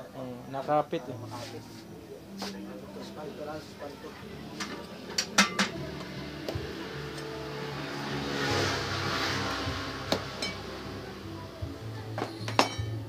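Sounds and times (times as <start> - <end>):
vehicle passing by: 5.8 - 11.7.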